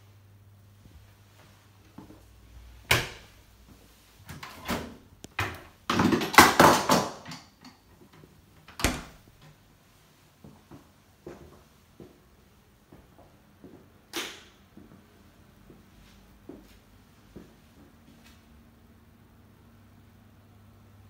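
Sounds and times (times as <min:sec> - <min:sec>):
cabinet door clicking: 0:08.7 - 0:09.2.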